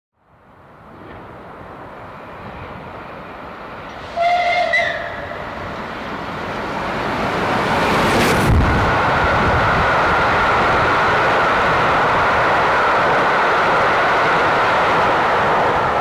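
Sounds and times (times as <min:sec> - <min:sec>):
steam train rushing past: 0:00.9 - 0:16.0
steam whistle blast: 0:04.0 - 0:05.2.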